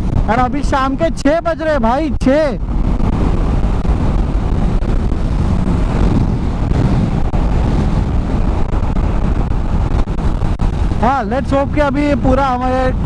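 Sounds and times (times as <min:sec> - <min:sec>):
wind rushing over microphone: 0:00.0 - 0:13.0
motorcycle engine droning: 0:02.6 - 0:12.3.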